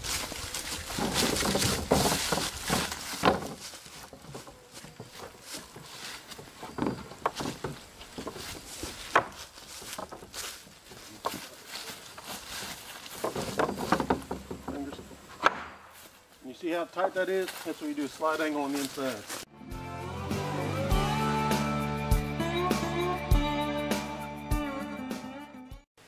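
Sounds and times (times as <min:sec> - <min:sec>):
footsteps in dry leaves: 0:00.0 - 0:14.0, 0:15.8 - 0:19.5.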